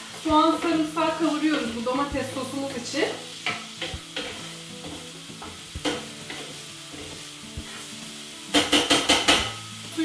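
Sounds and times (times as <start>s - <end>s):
onions sizzling in oil: 0.0s - 10.0s
wooden spatula scraping a pan: 2.7s - 8.8s.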